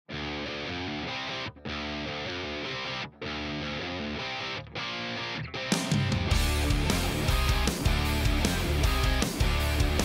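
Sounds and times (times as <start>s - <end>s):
background music: 5.6s - 10.0s.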